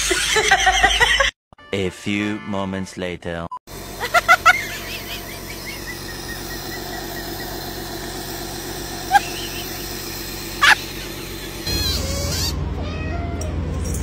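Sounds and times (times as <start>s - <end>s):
high chirping animal calls: 4.6s - 7.6s, 9.0s - 9.8s.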